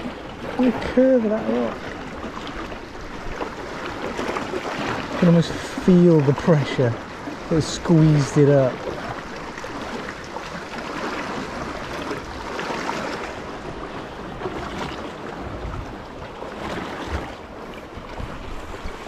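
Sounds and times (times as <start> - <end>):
soft splashes: 0.0 - 19.0
water lapping against hull and rocks: 0.0 - 19.0
wind rumble on microphone: 8.5 - 19.0.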